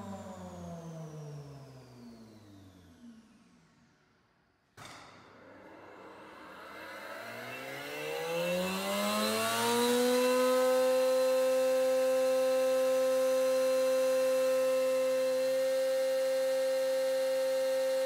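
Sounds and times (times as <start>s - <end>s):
spindle motor whine: 6.4s - 18.0s.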